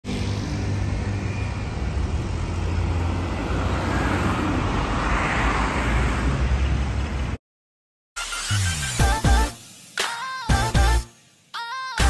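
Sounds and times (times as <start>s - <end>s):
low rumble of passing vehicles: 0.0s - 7.4s
car driving past close: 0.1s - 7.3s.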